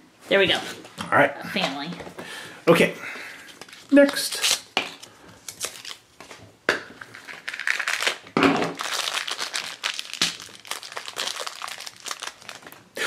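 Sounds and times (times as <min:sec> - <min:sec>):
plastic packaging crinkling: 0:03.5 - 0:06.1, 0:07.0 - 0:13.0.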